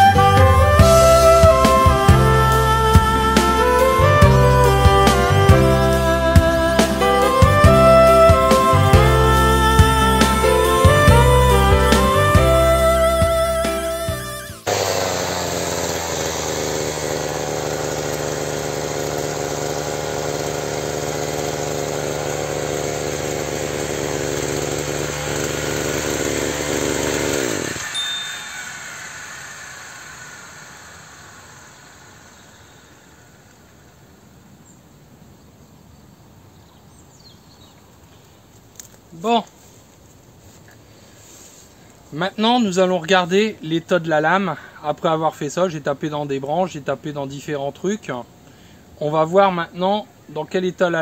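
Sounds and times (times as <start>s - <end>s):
brushcutter engine running: 0.0s - 34.0s.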